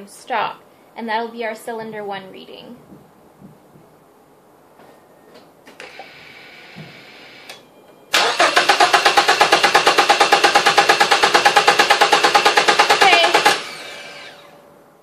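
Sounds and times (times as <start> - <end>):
car engine cranking without firing: 8.1 - 14.6
faint steady whir: 13.1 - 15.0.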